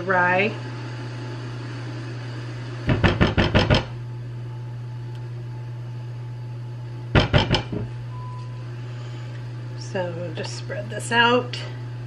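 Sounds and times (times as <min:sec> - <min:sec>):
low appliance hum: 0:00.0 - 0:12.0
utensil knocking on skillet: 0:07.2 - 0:07.9.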